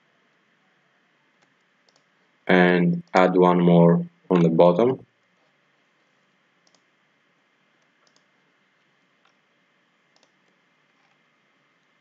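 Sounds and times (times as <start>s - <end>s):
faint computer mouse clicks: 1.4s - 2.1s, 6.6s - 6.9s, 7.8s - 8.3s, 10.1s - 11.2s.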